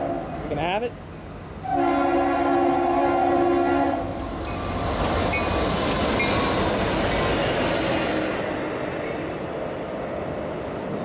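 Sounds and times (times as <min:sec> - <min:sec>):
train rumbling past: 0:00.0 - 0:11.0
locomotive air horn blast: 0:01.6 - 0:04.2.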